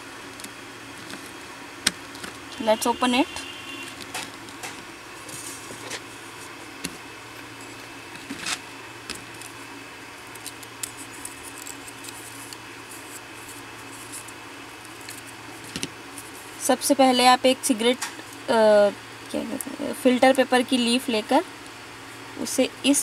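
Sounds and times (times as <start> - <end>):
paper rustling: 4.0 - 6.6, 10.4 - 16.6.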